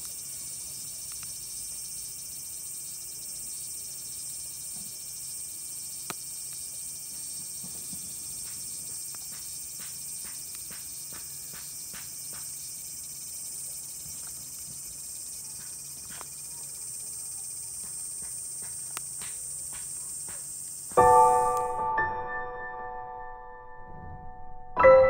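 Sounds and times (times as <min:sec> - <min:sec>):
insects chorus: 0:00.0 - 0:21.9
firewood crackling: 0:06.0 - 0:13.2.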